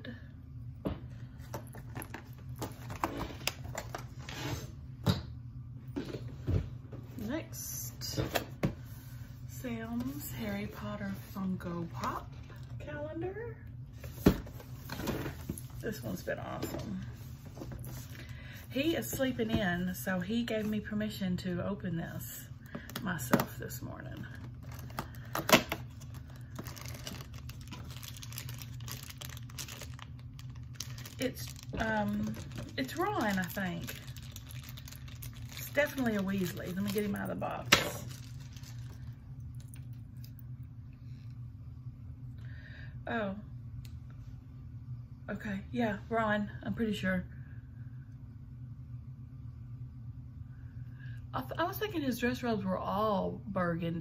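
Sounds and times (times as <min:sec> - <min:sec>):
low steady hum: 0:00.0 - 0:54.0
packaging rustling: 0:24.4 - 0:39.2.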